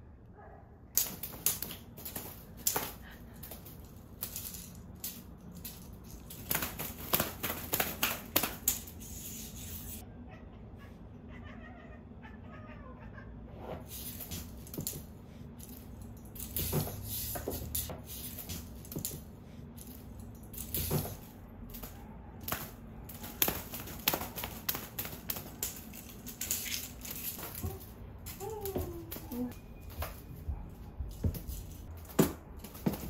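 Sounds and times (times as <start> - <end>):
cats tapping on floor: 1.0 - 8.9.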